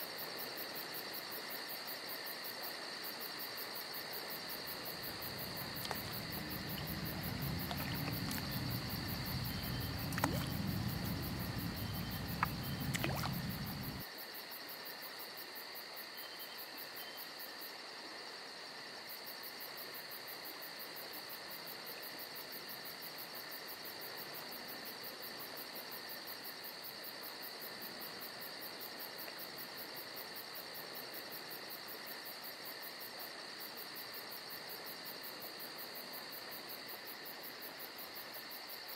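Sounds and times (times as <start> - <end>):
crickets chirping: 0.0 - 38.9
low rumble: 5.1 - 14.0.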